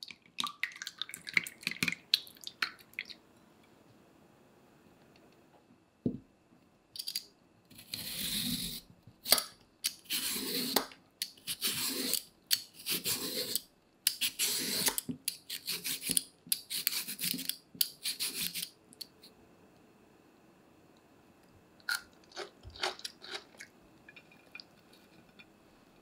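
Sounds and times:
peeler rasping on cucumber: 0:07.8 - 0:08.8, 0:10.0 - 0:10.8, 0:11.4 - 0:12.2, 0:12.8 - 0:18.7.

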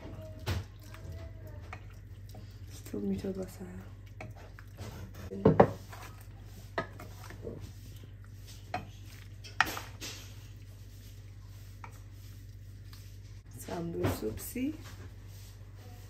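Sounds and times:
low steady hum: 0:00.0 - 0:16.0
utensil scrape: 0:04.2 - 0:13.8.

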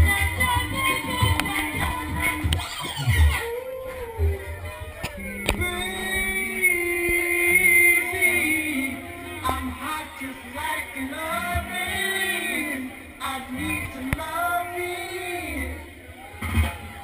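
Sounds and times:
light bass: 0:00.0 - 0:07.3
dance music over sound system: 0:00.0 - 0:07.4, 0:08.4 - 0:17.0
sung vocal melody: 0:00.0 - 0:16.5.

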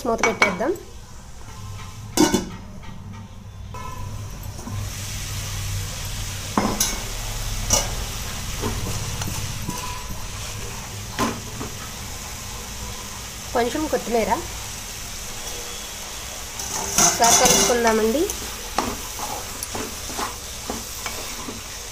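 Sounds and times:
curry sizzling in a pan: 0:03.2 - 0:21.9.

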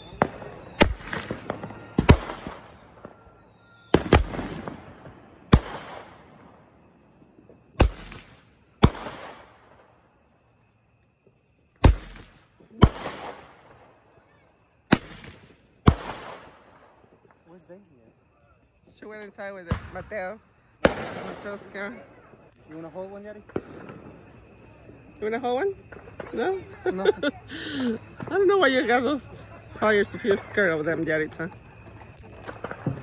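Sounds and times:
firework sharp pops: 0:00.0 - 0:10.0, 0:11.2 - 0:14.2, 0:14.9 - 0:17.5, 0:19.2 - 0:22.6, 0:23.3 - 0:26.8, 0:28.0 - 0:28.7, 0:31.8 - 0:33.0.

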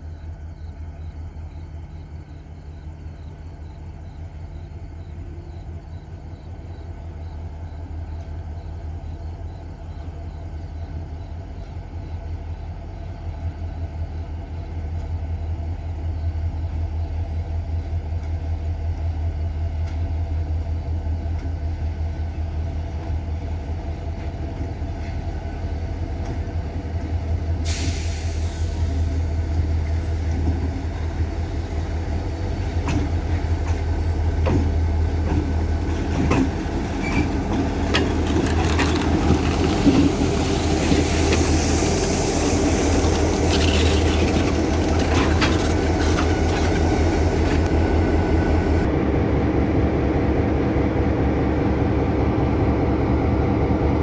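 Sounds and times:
diesel locomotive engine drone: 0:00.0 - 0:54.0
high hiss: 0:40.3 - 0:44.2.

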